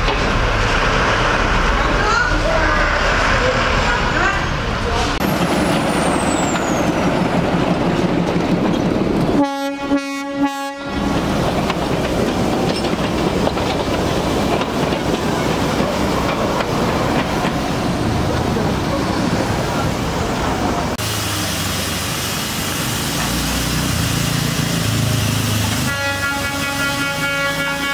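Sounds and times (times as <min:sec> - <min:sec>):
diesel train passing: 0:00.0 - 0:27.9
train horn blast: 0:09.4 - 0:11.2, 0:25.8 - 0:27.9.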